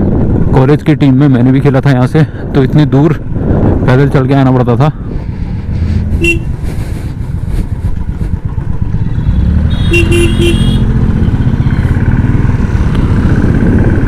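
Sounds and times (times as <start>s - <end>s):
motorcycle engine running: 5.3s - 14.0s
vehicle horn beeps: 6.2s - 6.6s, 9.3s - 10.9s.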